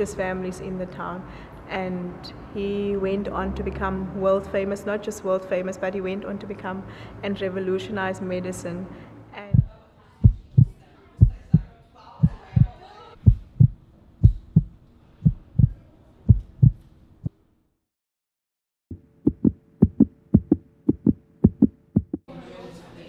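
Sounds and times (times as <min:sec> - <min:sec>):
heartbeat thumps: 0:09.5 - 0:17.4, 0:18.9 - 0:22.3.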